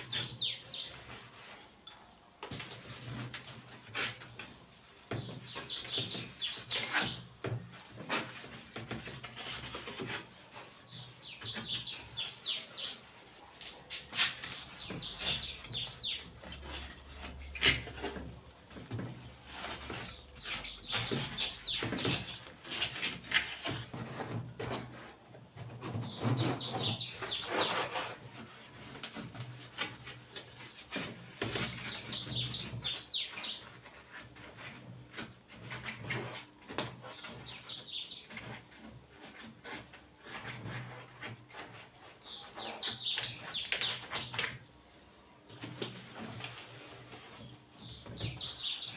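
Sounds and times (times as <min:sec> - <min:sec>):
bird chirping: 0:00.0 - 0:01.2, 0:05.1 - 0:07.2, 0:10.8 - 0:13.1, 0:14.5 - 0:16.7, 0:19.9 - 0:22.5, 0:26.0 - 0:28.0, 0:31.8 - 0:33.8, 0:37.1 - 0:38.6, 0:42.2 - 0:44.5, 0:47.8 - 0:48.9.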